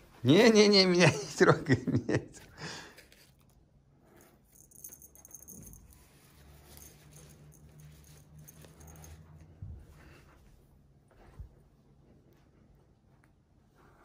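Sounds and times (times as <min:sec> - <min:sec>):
soft rustles: 0:03.0 - 0:14.0
small bell jingling: 0:04.4 - 0:09.4.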